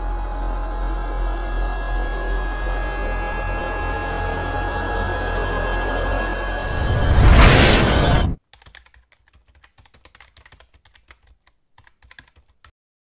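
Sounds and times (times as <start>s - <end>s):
loud cinematic music: 0.0s - 8.4s
computer keyboard typing: 8.4s - 12.7s.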